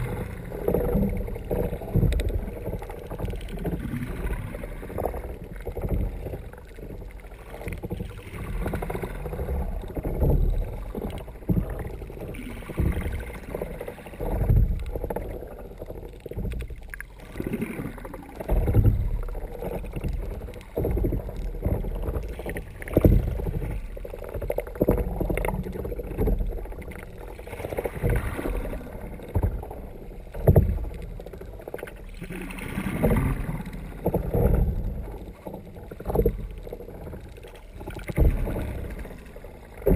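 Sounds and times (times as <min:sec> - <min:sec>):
water sloshing against kayak hull: 0:00.0 - 0:39.9.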